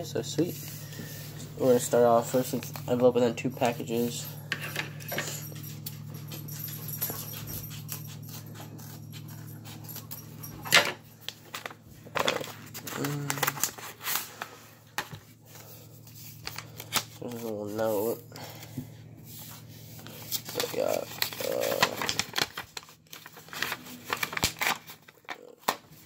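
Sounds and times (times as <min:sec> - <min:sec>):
steady low hum: 0:00.0 - 0:24.5
paper rustling and crinkling: 0:00.4 - 0:04.1, 0:11.2 - 0:26.0
paper envelope tearing: 0:11.6 - 0:14.7, 0:16.2 - 0:18.7, 0:20.0 - 0:26.0.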